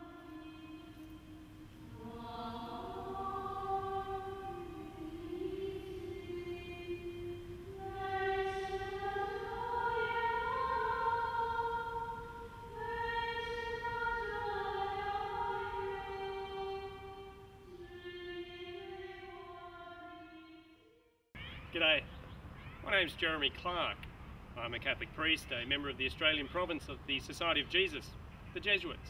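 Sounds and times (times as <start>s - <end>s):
choir singing held notes: 0.0s - 20.9s.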